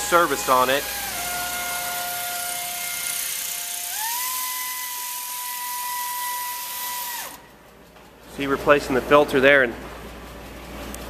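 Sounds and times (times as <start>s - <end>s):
air ratchet whining: 0.0s - 7.4s.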